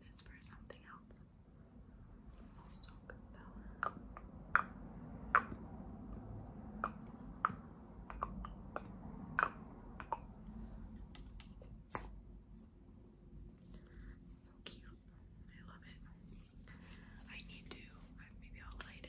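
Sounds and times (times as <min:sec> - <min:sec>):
sharp taps and clicks on object: 0:06.8 - 0:10.3.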